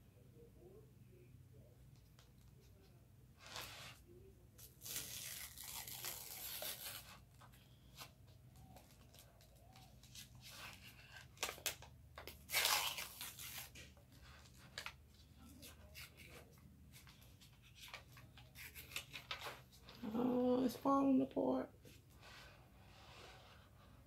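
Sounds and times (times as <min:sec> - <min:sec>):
cardboard tearing: 0:04.7 - 0:07.2, 0:10.4 - 0:14.0.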